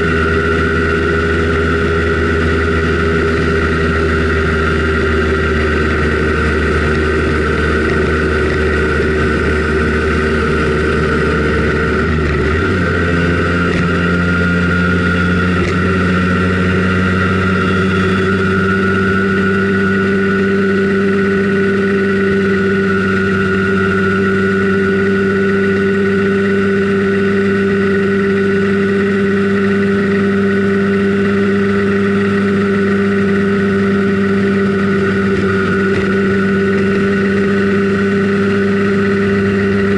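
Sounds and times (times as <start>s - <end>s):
two-stroke scooter engine running: 0.0s - 39.9s.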